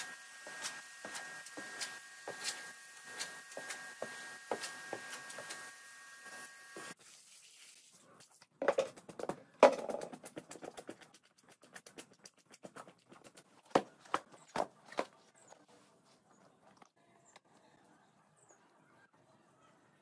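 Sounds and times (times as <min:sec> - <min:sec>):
pressure washer spray hissing: 0:00.0 - 0:07.0.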